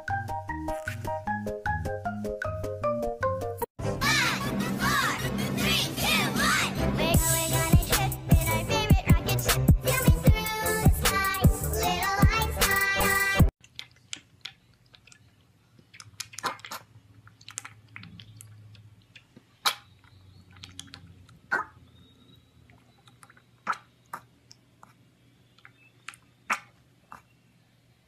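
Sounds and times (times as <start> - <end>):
piglet slurping milk from bowl: 13.6 - 21.7.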